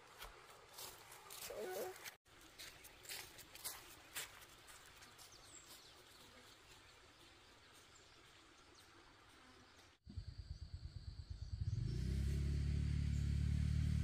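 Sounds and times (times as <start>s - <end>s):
low pulsing rumble: 10.1s - 11.9s.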